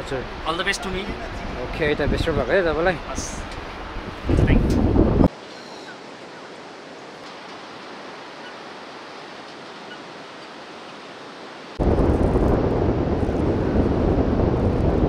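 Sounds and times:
river water rushing: 5.3 - 12.1.

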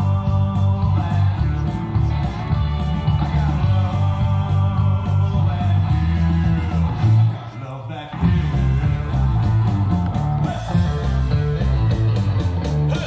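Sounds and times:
rock music with guitar: 0.0 - 13.0.

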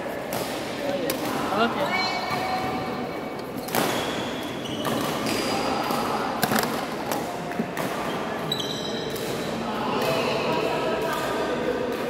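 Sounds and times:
shoes squeaking on court floor: 1.7 - 5.7, 7.8 - 9.6
racket hitting shuttlecock: 3.6 - 4.1.

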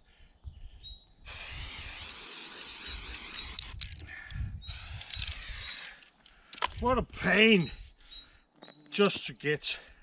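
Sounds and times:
spray paint can hissing: 1.3 - 3.8, 4.7 - 5.9.

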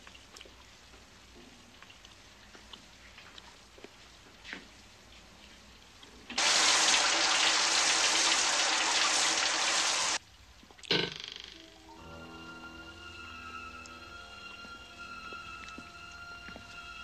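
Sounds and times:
shower spray running: 6.4 - 10.2.

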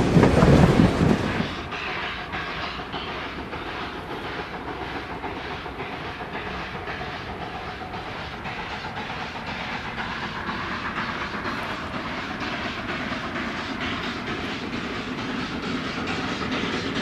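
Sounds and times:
steam locomotive running: 0.0 - 17.0.

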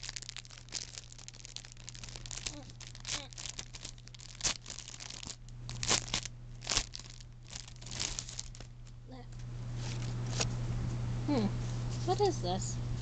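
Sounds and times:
plastic wrapping crinkling and tearing: 0.0 - 9.0, 9.8 - 10.5.

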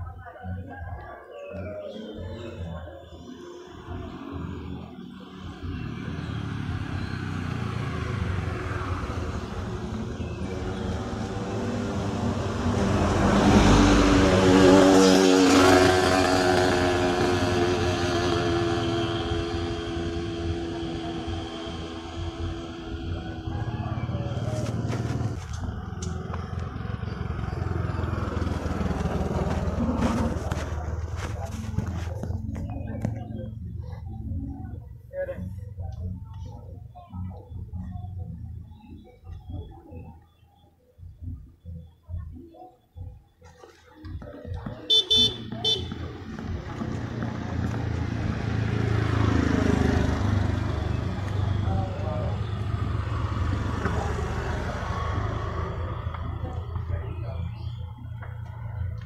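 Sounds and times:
small motorcycle engine running: 5.8 - 32.0.

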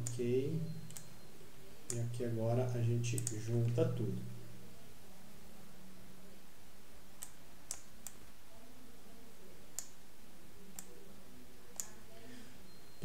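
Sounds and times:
computer mouse clicking: 0.0 - 0.2, 0.8 - 1.1, 3.1 - 3.8, 7.2 - 8.4, 9.7 - 10.0, 11.7 - 12.0.

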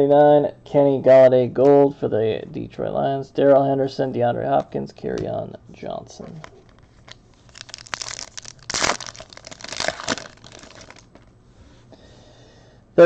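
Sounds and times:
foil wrapper crinkling: 6.6 - 11.3.

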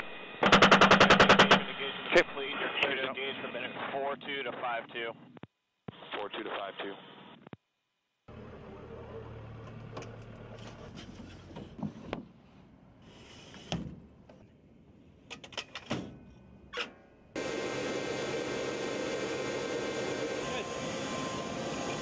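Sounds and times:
metallic clicks and clunks: 15.2 - 17.0
aircraft engine noise: 17.4 - 22.0.

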